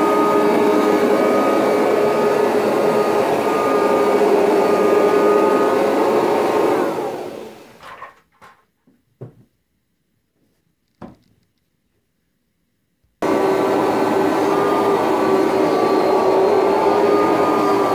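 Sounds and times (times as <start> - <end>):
vacuum cleaner motor running: 0.0 - 7.8, 13.2 - 17.9.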